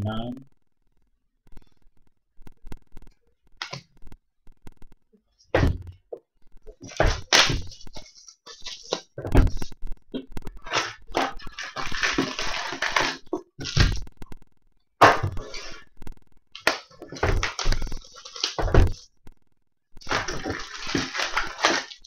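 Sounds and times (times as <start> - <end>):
knocks and thuds on a table: 5.6 - 6.0
wrapper crinkling and tearing: 6.8 - 9.7, 10.6 - 14.0, 16.6 - 19.0, 20.0 - 22.0.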